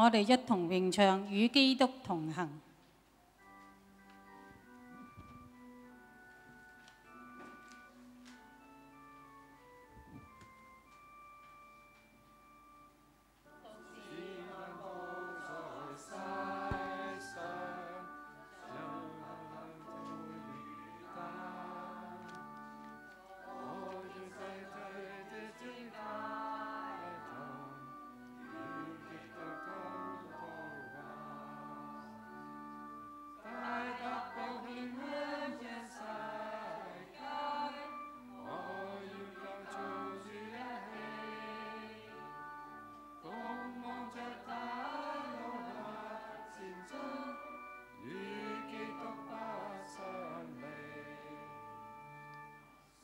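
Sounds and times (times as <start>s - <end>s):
congregation singing a hymn: 13.5s - 52.7s.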